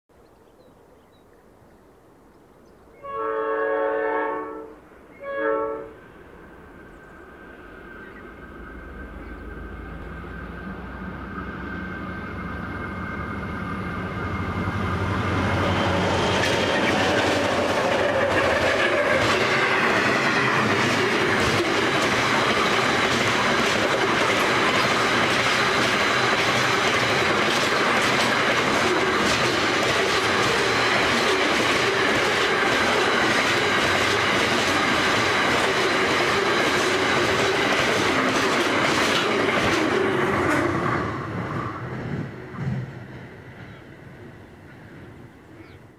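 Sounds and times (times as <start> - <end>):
diesel locomotive engines: 3.0 - 45.9
wagons rumbling: 8.8 - 42.9
wheels clacking over rail joints: 14.3 - 43.8.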